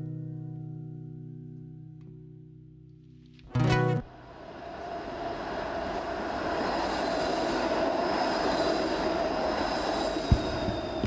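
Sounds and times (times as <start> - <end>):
faint high whine: 4.1 - 11.0
streetcar rumbling on rails: 4.1 - 11.0.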